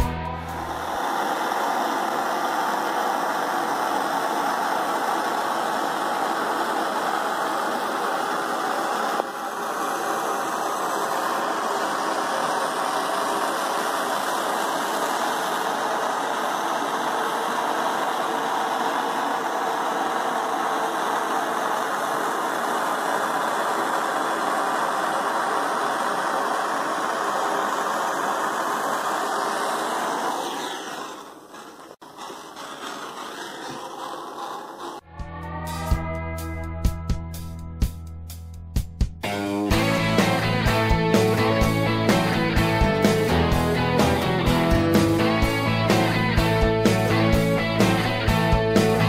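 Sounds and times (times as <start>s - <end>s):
gas torch hissing: 0.5s - 35.0s.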